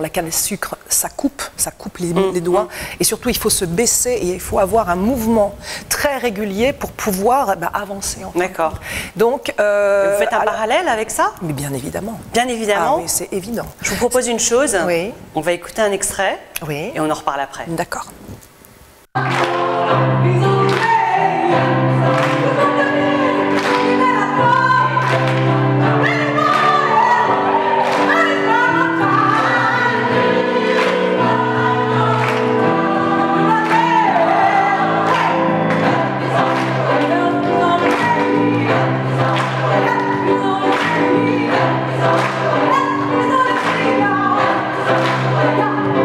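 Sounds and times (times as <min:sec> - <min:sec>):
choir singing in harmony: 0:19.2 - 0:46.0.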